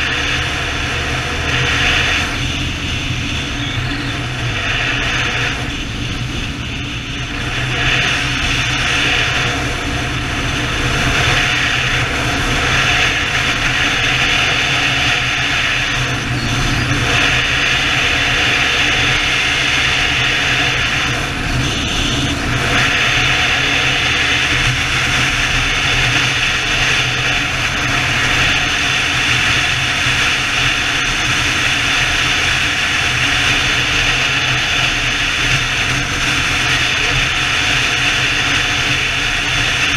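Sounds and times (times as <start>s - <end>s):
motorcycle engine drone: 0.0s - 39.9s
wind rushing over microphone: 0.0s - 39.9s.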